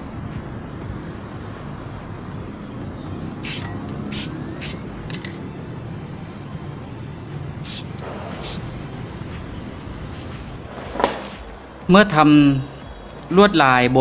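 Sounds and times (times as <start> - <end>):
spray paint can hissing: 3.4 - 4.8, 7.6 - 8.8.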